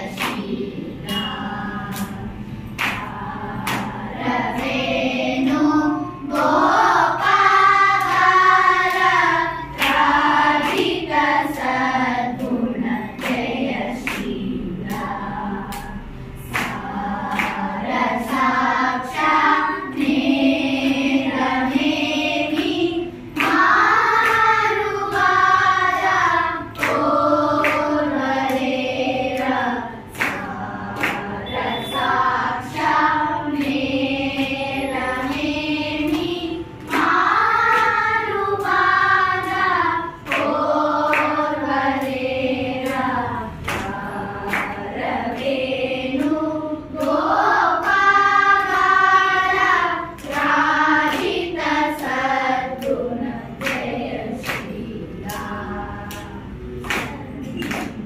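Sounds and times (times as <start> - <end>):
hand claps: 0.0 - 4.8, 6.3 - 18.6, 21.8 - 34.6, 35.2 - 58.0
children singing in unison: 0.0 - 58.0.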